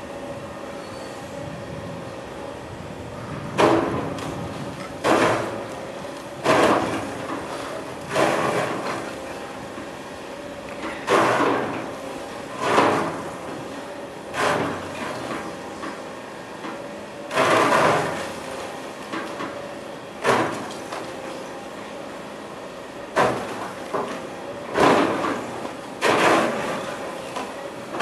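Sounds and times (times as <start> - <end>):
excavator engine hum: 0.0 - 28.0
excavator bucket impacts on snow: 5.0 - 5.6, 6.4 - 7.4, 11.1 - 11.8, 20.2 - 20.8, 23.2 - 26.9.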